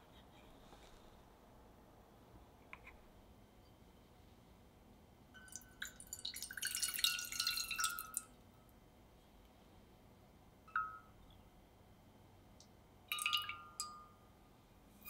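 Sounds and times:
water dripping: 5.4s - 8.4s, 12.6s - 14.1s
water pouring into saucepan: 5.5s - 8.3s, 13.1s - 13.9s.

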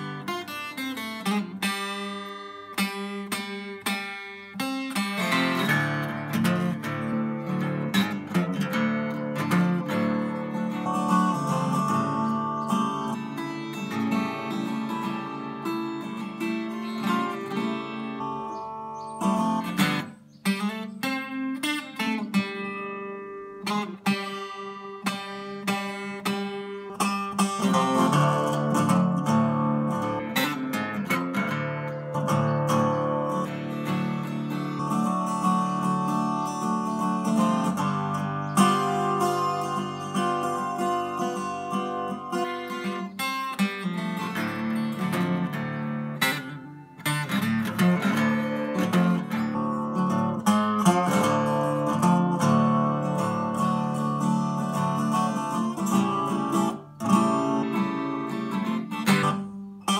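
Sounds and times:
acoustic guitar playing: 0.0s - 59.9s.

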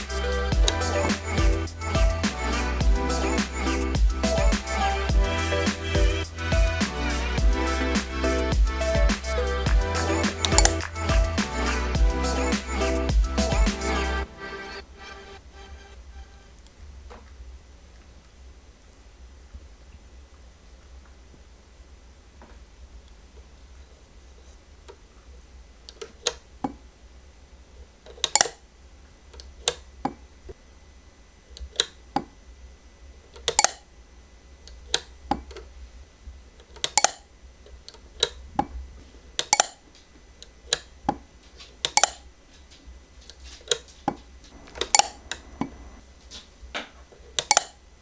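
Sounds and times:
low hum: 0.0s - 24.7s, 42.1s - 47.0s
hard objects clicking and knocking: 39.4s - 39.8s, 40.7s - 42.2s.

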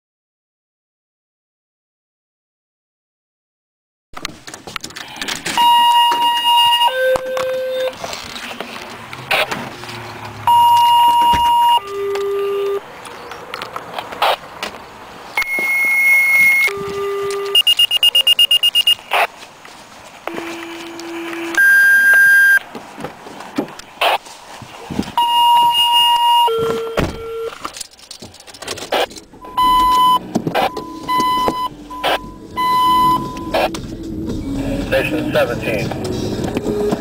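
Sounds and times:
pager two-tone alert: 5.6s - 8.0s, 10.5s - 12.8s, 15.4s - 19.0s, 20.3s - 22.6s, 25.2s - 27.6s, 29.4s - 33.7s
short beeps: 5.6s - 8.0s, 15.4s - 19.0s, 20.3s - 22.6s, 25.2s - 27.6s, 29.4s - 33.7s
rapid pulsing beep: 15.4s - 19.0s, 21.1s - 22.6s, 29.4s - 33.7s.

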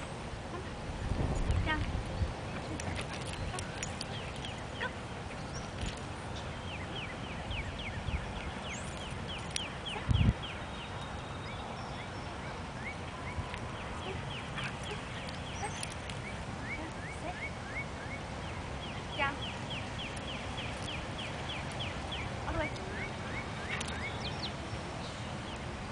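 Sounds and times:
wind rumble on microphone: 0.0s - 17.1s
bird chirping: 1.3s - 25.6s.

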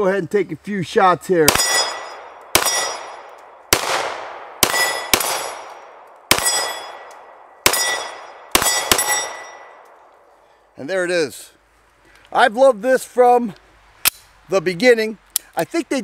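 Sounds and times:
steel target ringing: 1.5s - 3.3s, 4.6s - 5.7s, 6.3s - 9.8s
pistol shots: 1.5s - 9.8s.

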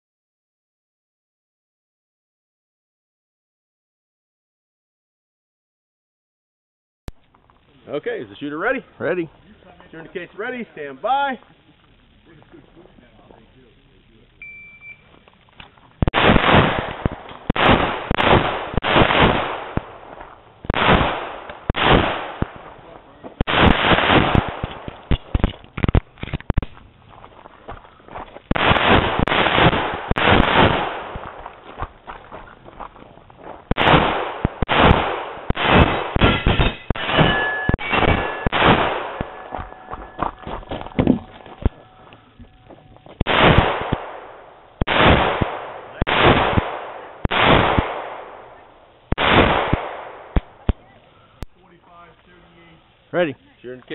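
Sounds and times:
faint ringing tones: 11.6s - 15.5s, 36.3s - 43.2s
shot timer beep: 14.4s - 15.1s
pistol shots with ringing echo: 16.0s - 20.0s, 20.7s - 22.8s, 23.4s - 25.5s, 28.5s - 31.4s, 33.7s - 40.2s, 43.2s - 50.9s.

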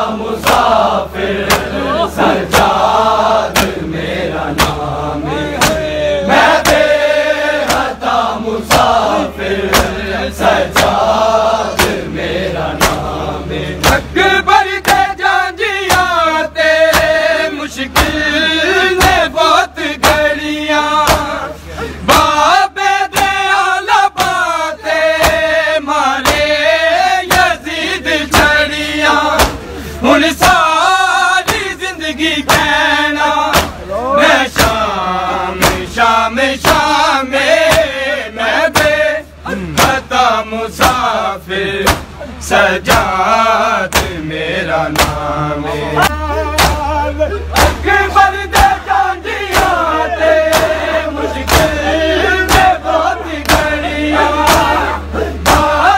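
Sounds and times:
men chanting: 0.0s - 55.9s
hands slapping chests: 1.5s - 1.8s, 3.5s - 3.8s, 53.4s - 53.7s.

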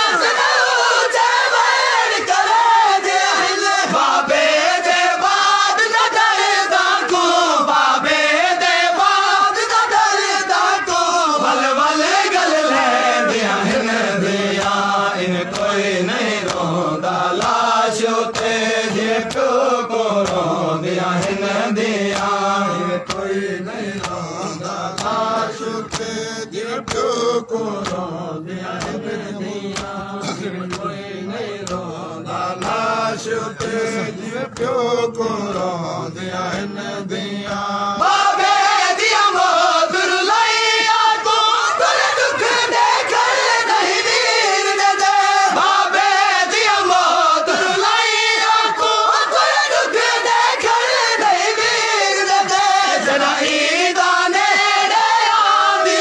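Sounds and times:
men's chorus chanting: 0.0s - 56.0s
reciter on a microphone: 0.0s - 56.0s
chest-beating slaps: 15.4s - 17.6s, 20.2s - 20.5s, 21.2s - 22.4s, 23.0s - 27.2s, 27.8s - 28.1s, 28.7s - 34.8s.

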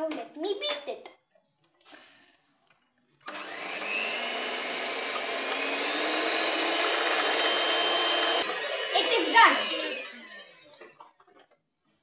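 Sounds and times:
electric hand mixer running: 3.2s - 11.1s.

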